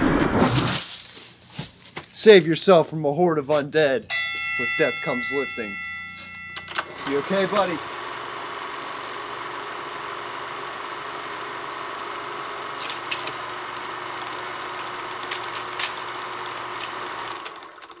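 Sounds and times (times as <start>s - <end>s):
film projector whirring: 4.8s - 18.0s
film pops and crackles: 7.4s - 18.0s.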